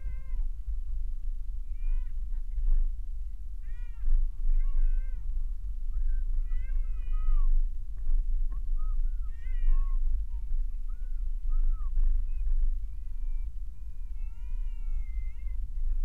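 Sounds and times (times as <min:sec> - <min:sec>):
car cabin rumble: 0:00.0 - 0:16.0.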